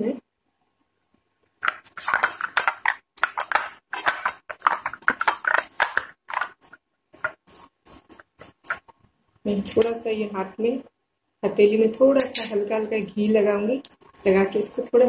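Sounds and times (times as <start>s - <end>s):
hands kneading sticky dough: 1.6s - 9.1s.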